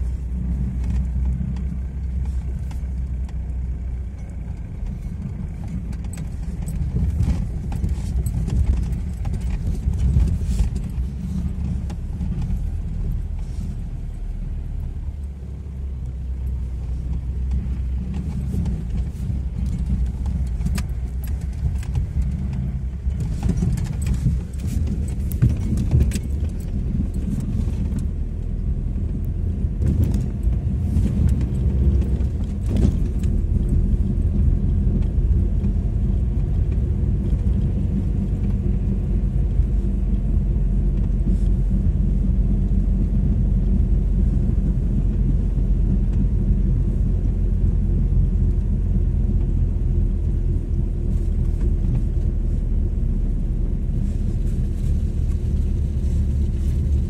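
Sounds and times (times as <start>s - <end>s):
vehicle engine rumble: 0.0s - 57.0s
knocks and rattles: 4.5s - 13.6s, 17.4s - 28.4s, 29.0s - 35.8s.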